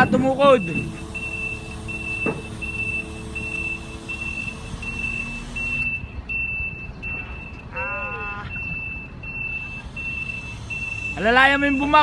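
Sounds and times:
crane travel alarm beeping: 0:00.0 - 0:12.0
low engine rumble: 0:00.0 - 0:12.0.

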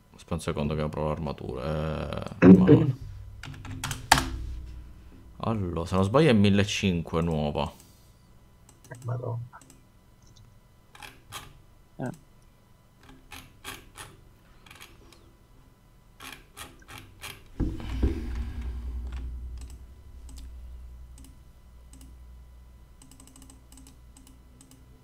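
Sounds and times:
loud thump: 0:02.4 - 0:05.6, 0:17.5 - 0:22.6
low rumble: 0:02.4 - 0:07.1, 0:17.5 - 0:24.5
keyboard and mouse clicking: 0:19.1 - 0:20.5, 0:21.2 - 0:22.2, 0:23.0 - 0:24.9.

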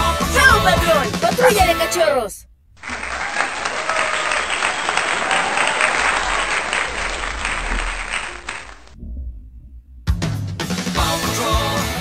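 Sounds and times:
large crowd applauding: 0:02.8 - 0:09.0.

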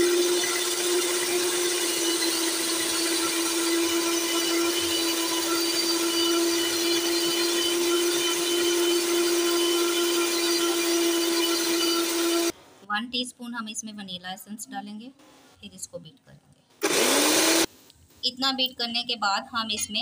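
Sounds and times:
electric hand mixer humming: 0:00.0 - 0:12.5, 0:16.8 - 0:17.7.

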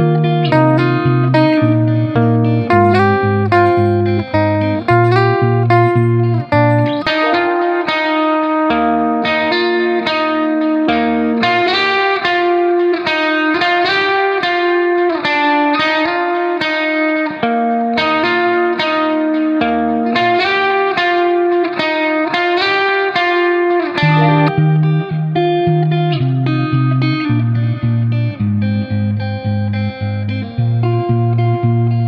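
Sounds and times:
plucked string instrument melody: 0:00.0 - 0:32.0
lower accompaniment: 0:00.4 - 0:08.3, 0:24.0 - 0:27.6.

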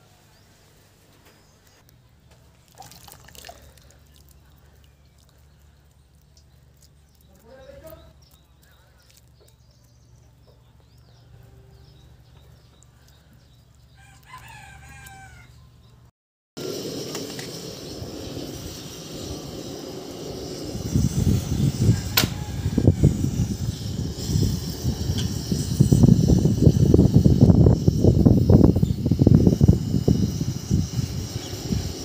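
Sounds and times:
rooster crowing: 0:14.0 - 0:15.7, 0:21.8 - 0:23.6
wind rushing with rumbling gusts: 0:16.6 - 0:32.0.

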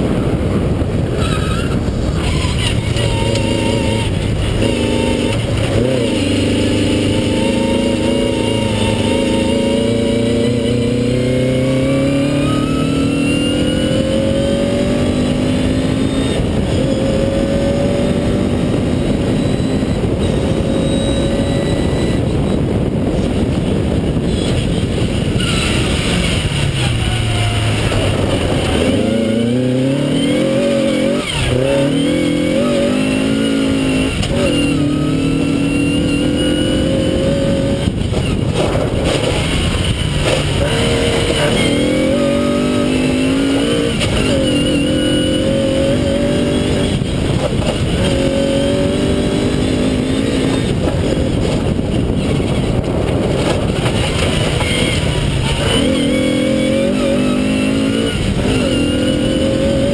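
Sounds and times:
rally car engine revving through gears: 0:00.0 - 0:59.9
tyres on loose gravel: 0:37.9 - 0:42.1, 0:50.4 - 0:56.2.

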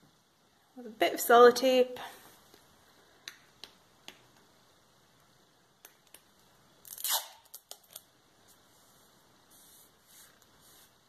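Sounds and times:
tape ripped off roll: 0:06.9 - 0:07.8.

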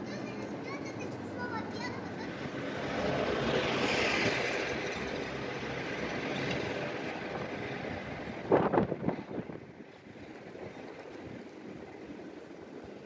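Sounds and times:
street traffic: 0:00.0 - 0:13.0
car passing close by: 0:02.5 - 0:09.0.

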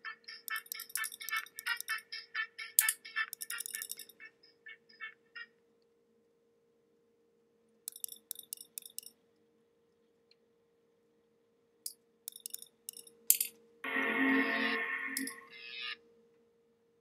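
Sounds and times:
faint steady hum: 0:00.0 - 0:17.0
sharp clicks: 0:00.4 - 0:02.0, 0:02.8 - 0:04.2, 0:07.9 - 0:09.1, 0:12.3 - 0:13.5.

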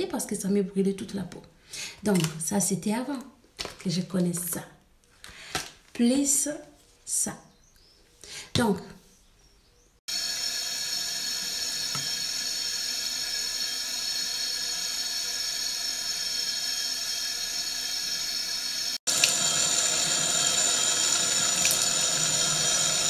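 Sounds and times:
tap water running into sink: 0:10.1 - 0:23.0.

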